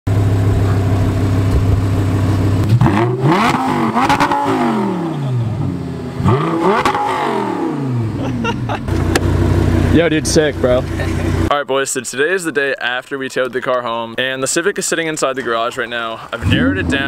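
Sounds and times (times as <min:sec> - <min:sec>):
car engine idling and revving: 0:00.1 - 0:11.5, 0:16.2 - 0:17.0.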